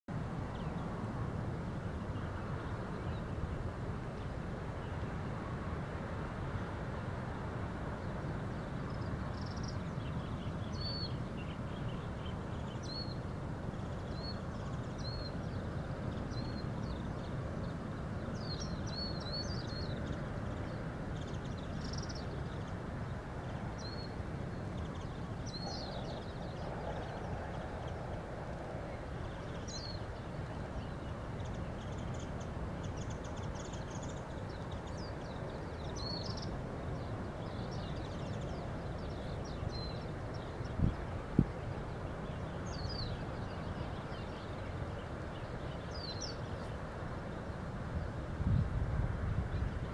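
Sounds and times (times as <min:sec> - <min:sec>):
low outdoor background noise: 0:00.1 - 0:49.9
birds chirping: 0:08.0 - 0:28.2, 0:28.9 - 0:48.1.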